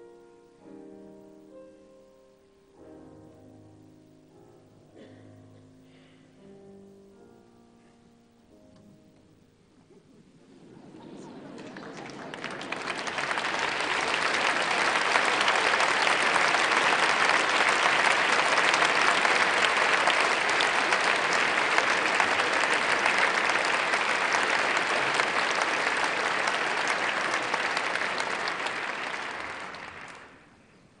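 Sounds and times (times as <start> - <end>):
audience applauding: 10.4 - 31.0.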